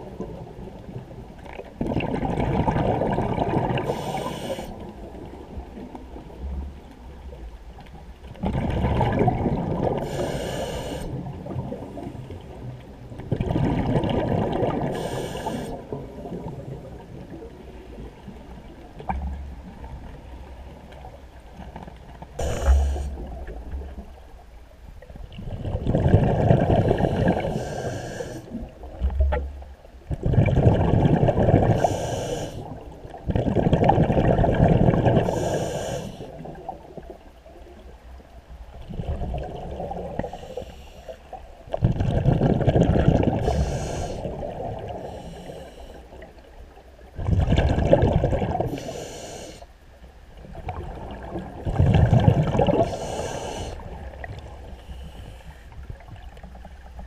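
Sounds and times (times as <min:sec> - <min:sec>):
regulator air hiss: 0:03.9 - 0:04.8, 0:10.1 - 0:11.2, 0:14.9 - 0:15.8, 0:22.4 - 0:23.3, 0:27.0 - 0:28.6, 0:31.8 - 0:32.8, 0:35.2 - 0:36.4, 0:40.2 - 0:41.2, 0:43.4 - 0:44.4, 0:45.0 - 0:46.2, 0:48.7 - 0:49.8, 0:52.8 - 0:54.0, 0:54.7 - 0:55.8
bubbling exhalation underwater: 0:25.4 - 0:27.5, 0:30.2 - 0:31.8, 0:41.8 - 0:43.4, 0:47.2 - 0:48.7, 0:50.8 - 0:52.9.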